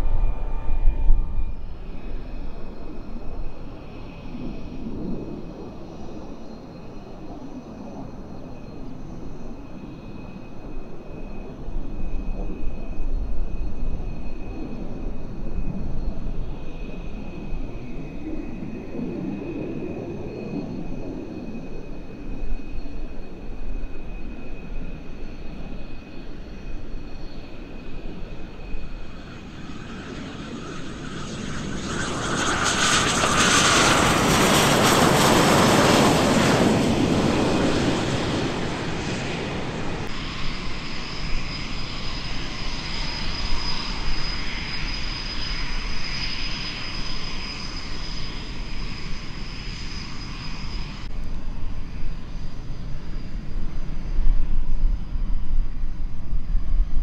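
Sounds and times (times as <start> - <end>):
jet roar passing: 0.0 - 6.4, 26.2 - 51.1
turbine whine: 0.0 - 57.0.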